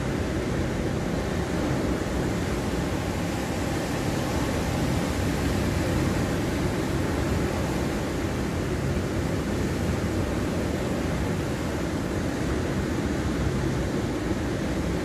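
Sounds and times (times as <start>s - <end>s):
ocean surf washing onto beach: 0.0s - 15.0s.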